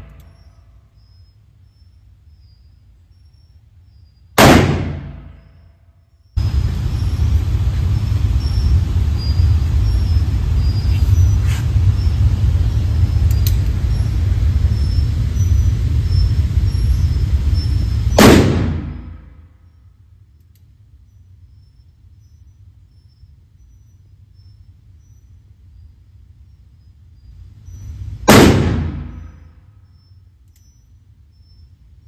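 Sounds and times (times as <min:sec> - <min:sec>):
revolver shot: 0:04.4 - 0:05.5, 0:18.1 - 0:19.3, 0:28.3 - 0:29.4
loud low rumble: 0:06.4 - 0:19.3.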